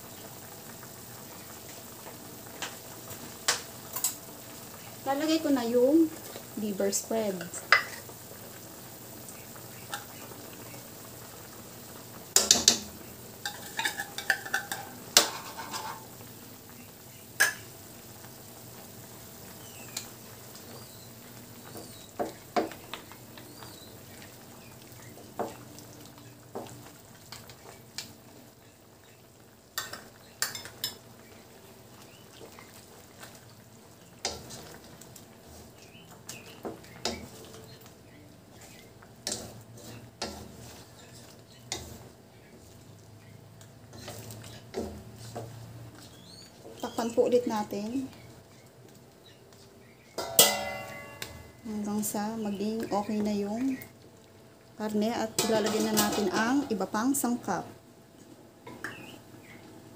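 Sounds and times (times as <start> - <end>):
broth simmering hiss: 0.0 - 59.9
spatula stirring in pan: 0.1 - 57.3
spoon scraping tin can: 13.5 - 16.1, 43.9 - 45.5.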